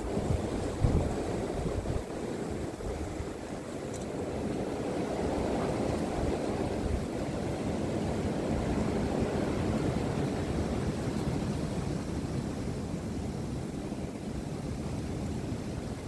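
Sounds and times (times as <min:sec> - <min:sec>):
wind buffeting microphone: 0:00.0 - 0:12.7
storm wind blowing: 0:00.0 - 0:16.0.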